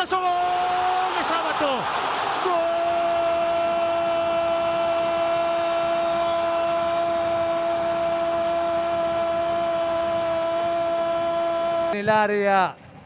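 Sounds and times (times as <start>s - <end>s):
commentator shouting: 0.0s - 5.6s
stadium crowd noise: 0.0s - 13.0s.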